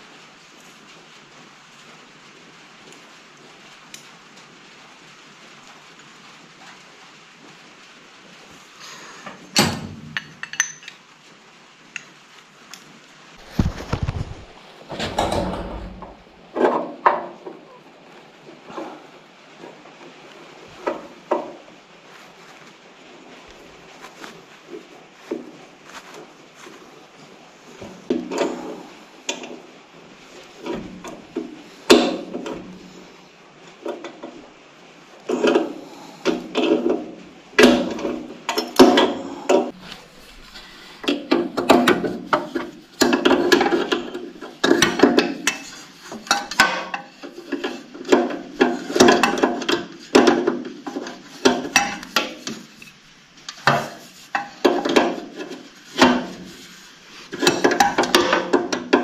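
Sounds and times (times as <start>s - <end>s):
metal tools clinking and knocking: 9.6s - 11.0s
scraping and rubbing: 13.3s - 33.2s, 39.1s - 59.0s.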